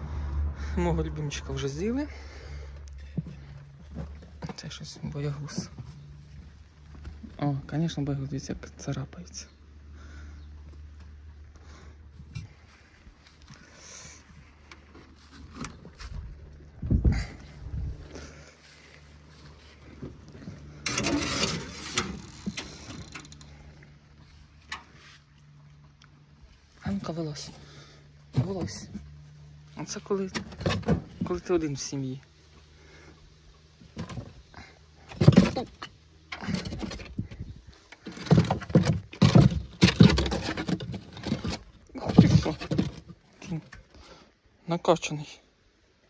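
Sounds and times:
rabbits thumping on wooden floor: 0:33.8 - 0:34.4, 0:35.0 - 0:37.4, 0:38.0 - 0:43.6.

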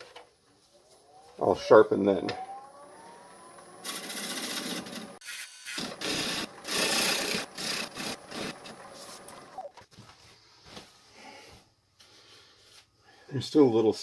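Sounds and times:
lathe high whine: 0:01.0 - 0:09.7
gouge rasping on spinning wood: 0:05.8 - 0:09.5.

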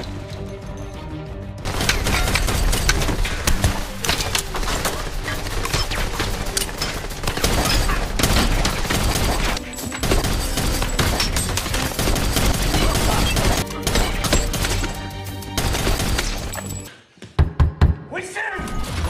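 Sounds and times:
rapid gunfire: 0:01.6 - 0:15.0, 0:15.6 - 0:16.5.

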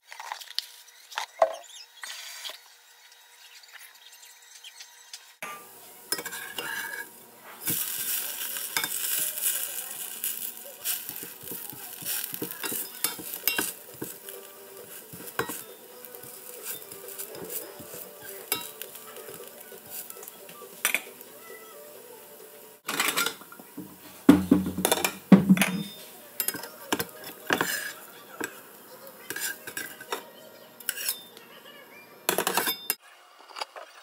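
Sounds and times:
metal spatula scraping pan: 0:05.4 - 0:07.9, 0:10.0 - 0:21.2, 0:24.1 - 0:28.6, 0:29.3 - 0:30.2, 0:30.8 - 0:31.3
hash brown sizzling in oil: 0:05.4 - 0:31.3.

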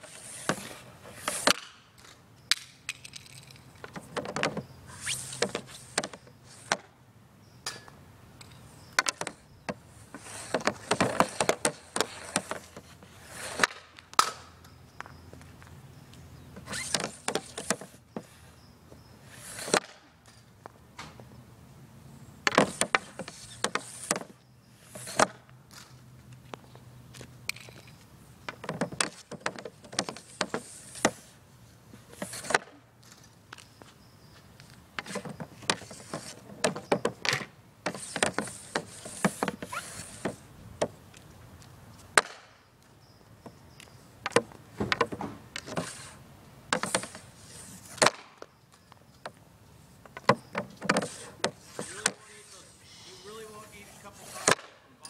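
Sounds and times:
hockey stick slapping and scraping pad: 0:00.0 - 0:03.2, 0:03.9 - 0:06.9, 0:09.0 - 0:14.5, 0:16.6 - 0:18.3, 0:19.2 - 0:20.2, 0:22.4 - 0:26.0, 0:28.5 - 0:31.4, 0:32.0 - 0:32.8, 0:35.0 - 0:41.0, 0:42.1 - 0:42.6, 0:44.2 - 0:48.5, 0:50.1 - 0:52.8, 0:54.0 - 0:54.8
stick cracking against pucks: 0:07.7 - 0:14.6, 0:28.5 - 0:31.3, 0:44.2 - 0:48.5, 0:50.1 - 0:52.6.

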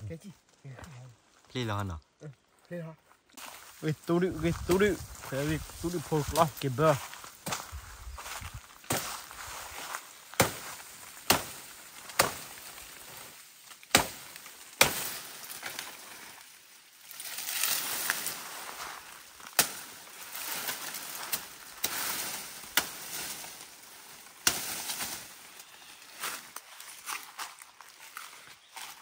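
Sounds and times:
leaves and stalks rustling: 0:00.0 - 0:29.0
machete chopping bamboo: 0:08.9 - 0:09.3, 0:10.3 - 0:12.8, 0:13.7 - 0:15.8, 0:19.5 - 0:19.9, 0:20.5 - 0:23.5, 0:24.4 - 0:25.2.

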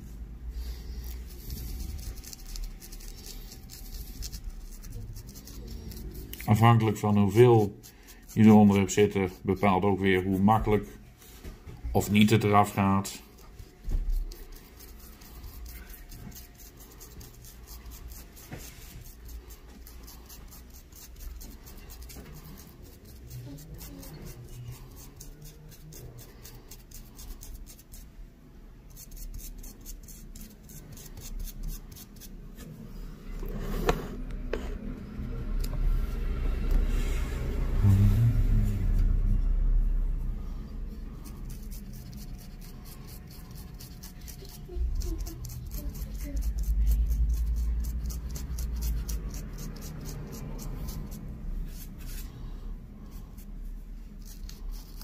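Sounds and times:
brush scrubbing plastic: 0:00.6 - 0:28.2, 0:28.8 - 0:32.9, 0:40.8 - 0:55.0
low rumble: 0:34.2 - 0:41.2.

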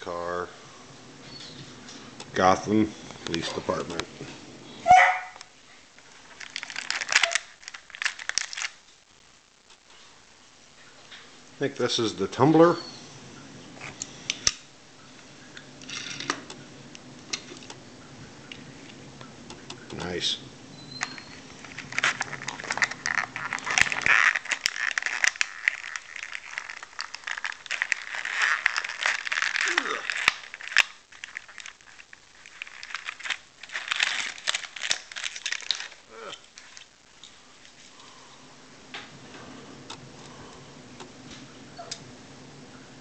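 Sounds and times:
packaging rustling: 0:05.2 - 0:09.0, 0:20.8 - 0:38.2
sharp clicks: 0:19.2 - 0:20.1.

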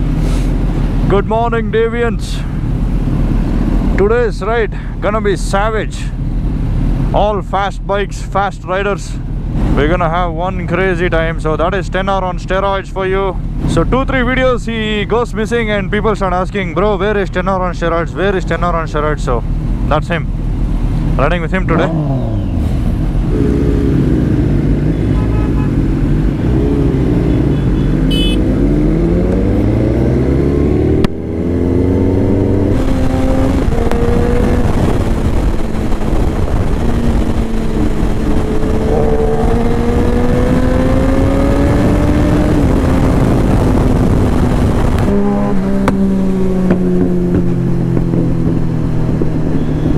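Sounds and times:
motorcycle engines revving: 0:00.0 - 0:49.9
motorcycle engine shifting gears: 0:19.6 - 0:49.9
wind rushing: 0:28.4 - 0:49.5.

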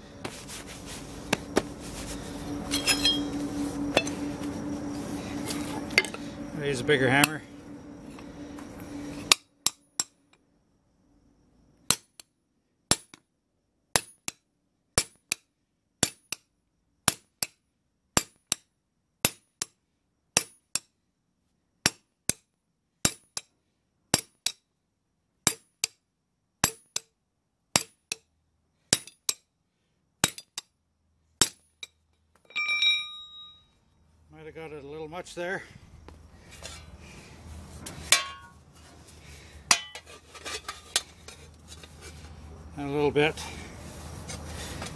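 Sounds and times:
sledgehammer clanking on steel: 0:02.6 - 0:03.4, 0:32.5 - 0:33.6, 0:38.0 - 0:38.6, 0:39.7 - 0:41.4.

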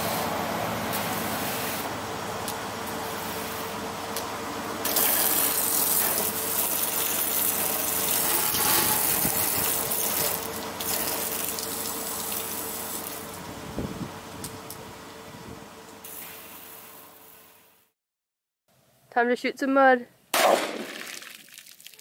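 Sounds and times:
hose spraying water on car: 0:04.8 - 0:13.3.

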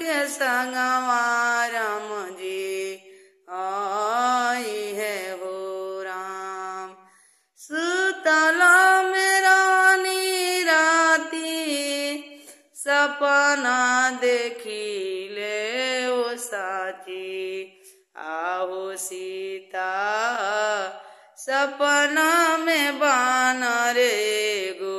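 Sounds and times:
woman singing unaccompanied: 0:00.0 - 0:07.0, 0:07.6 - 0:24.9.

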